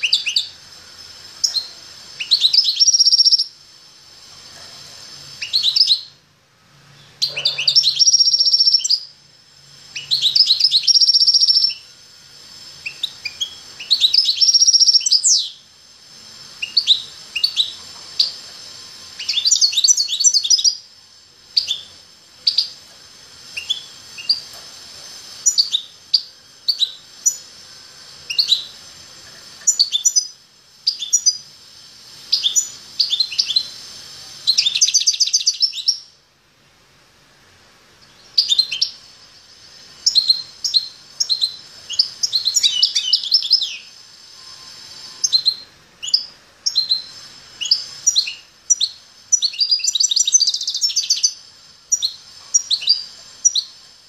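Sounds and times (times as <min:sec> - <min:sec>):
finch singing high trills: 0:00.0 - 0:03.6, 0:05.3 - 0:06.2, 0:07.0 - 0:09.2, 0:09.8 - 0:11.9, 0:12.5 - 0:20.9, 0:21.5 - 0:22.9, 0:23.5 - 0:24.6, 0:25.2 - 0:27.6, 0:28.3 - 0:28.9, 0:29.6 - 0:31.5, 0:32.2 - 0:36.2, 0:38.0 - 0:53.8
short bird chirps: 0:07.0 - 0:09.0, 0:10.0 - 0:11.8.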